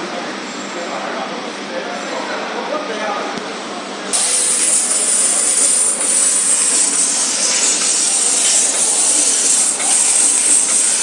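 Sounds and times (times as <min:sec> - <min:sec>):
laser cutter gas hissing: 0:04.1 - 0:11.0.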